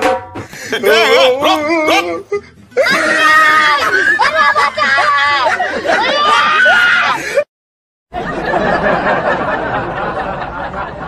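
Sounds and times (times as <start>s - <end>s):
people laughing and chattering: 0.4s - 7.4s, 8.2s - 11.0s
high voice crying out: 0.7s - 7.2s.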